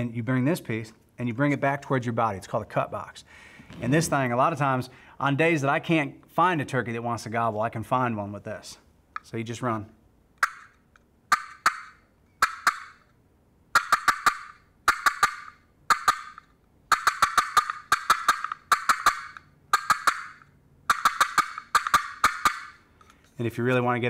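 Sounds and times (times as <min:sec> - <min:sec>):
wooden turkey call clucks: 0:10.4 - 0:13.1, 0:13.7 - 0:22.9.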